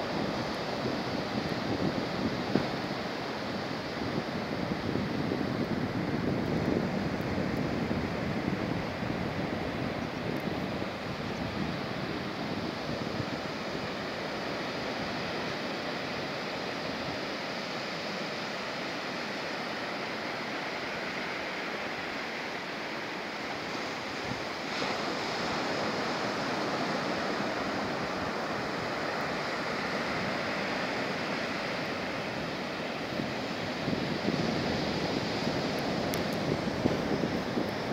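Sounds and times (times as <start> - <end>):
wind on microphone: 0.0 - 17.3, 23.7 - 37.9
surf breaking on beach: 0.0 - 37.9.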